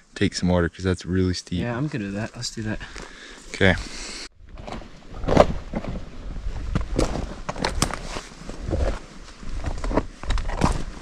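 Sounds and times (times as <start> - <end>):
wind rumble on microphone: 4.4 - 11.0.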